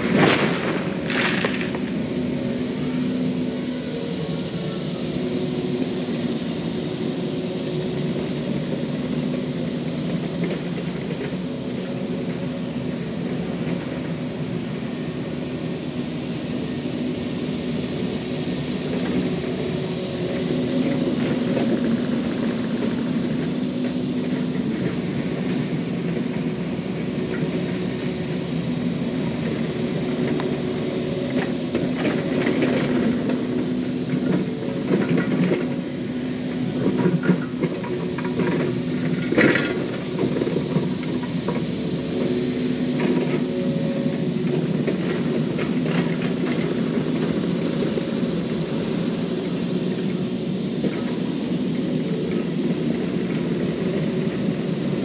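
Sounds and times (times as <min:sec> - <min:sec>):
excavator diesel engine: 0:00.0 - 0:55.0.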